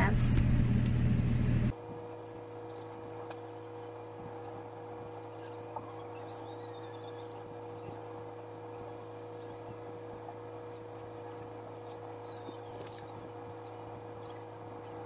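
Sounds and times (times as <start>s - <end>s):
electric fan humming: 0.0s - 1.8s.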